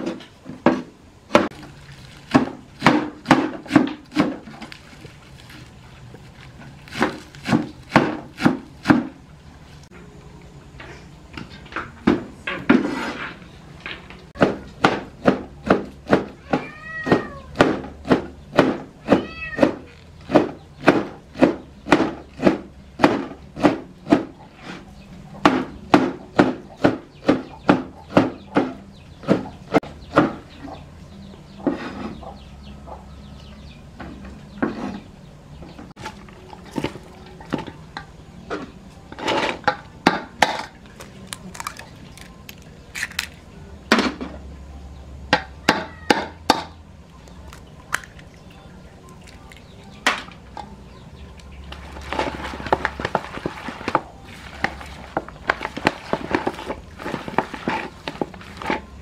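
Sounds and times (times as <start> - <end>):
cleaver chopping on plastic board: 6.9 - 9.1
cat meowing: 16.4 - 17.6, 19.0 - 19.9, 45.6 - 46.3.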